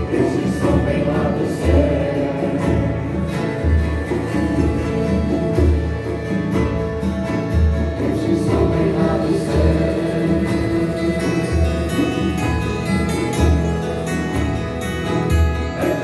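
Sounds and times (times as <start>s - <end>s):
voices singing a hymn: 0.0s - 3.7s, 7.8s - 12.3s
guitar accompaniment: 0.0s - 16.0s.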